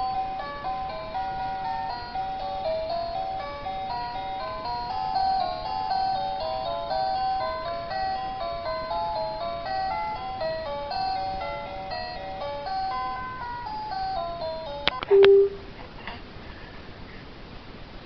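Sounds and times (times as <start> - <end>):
toy chiming electronic tune: 0.0 - 15.6
loud steady tone: 15.0 - 15.7.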